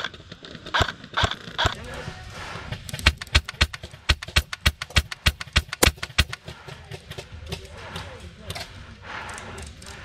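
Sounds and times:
airsoft rifle shots: 0.7 - 1.8, 2.9 - 6.6.

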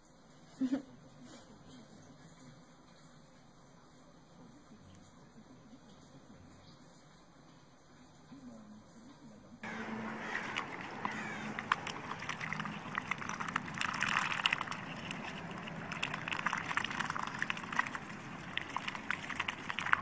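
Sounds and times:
ducks slurping watermelon: 9.6 - 20.0.

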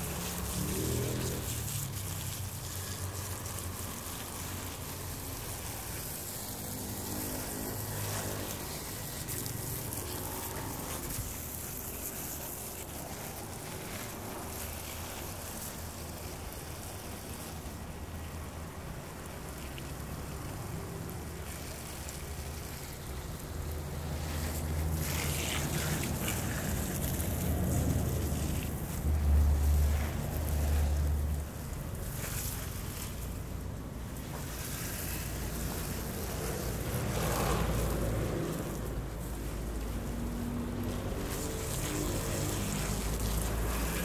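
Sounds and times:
hose spraying water on plants: 0.0 - 44.0.

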